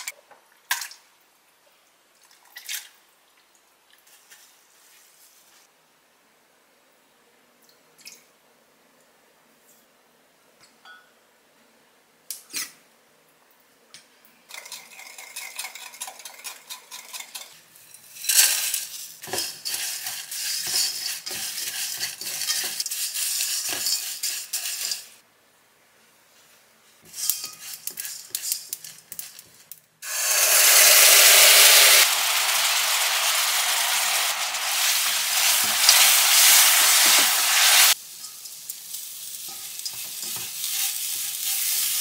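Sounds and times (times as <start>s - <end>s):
dry rattling and scraping in wok: 14.5s - 25.2s, 27.0s - 42.0s
loud sizzle: 17.8s - 25.2s, 27.2s - 42.0s.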